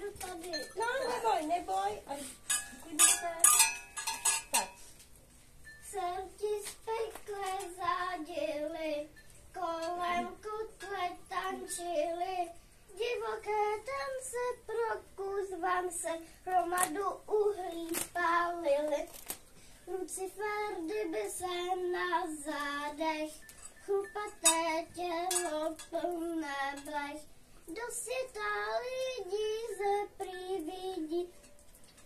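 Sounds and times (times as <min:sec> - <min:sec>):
child singing alone: 0:05.9 - 0:19.1, 0:19.9 - 0:31.3.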